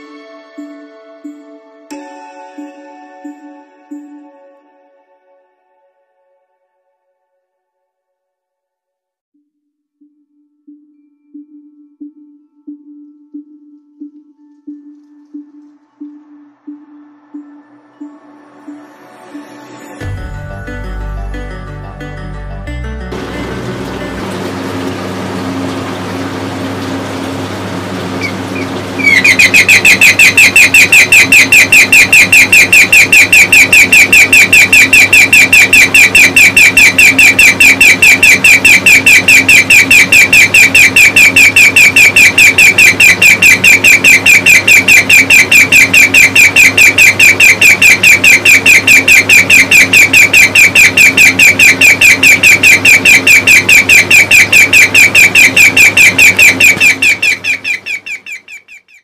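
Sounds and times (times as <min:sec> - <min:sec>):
electronic bird-chirp alarm: 0:09.4 - 0:20.1, 0:28.1 - 0:59.0
steady low hum: 0:23.1 - 0:29.6.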